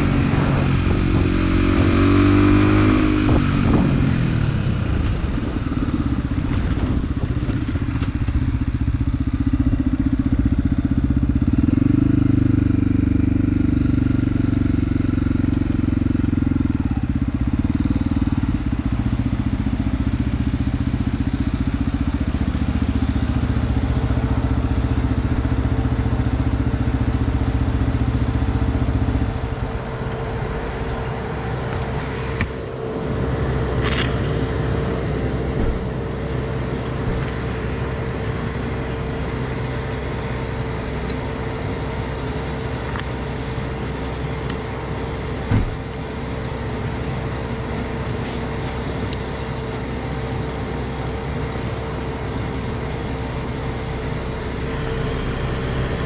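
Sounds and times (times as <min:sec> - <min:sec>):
motorcycle engine running: 0:00.0 - 0:56.0
brief thump: 0:45.5 - 0:45.8.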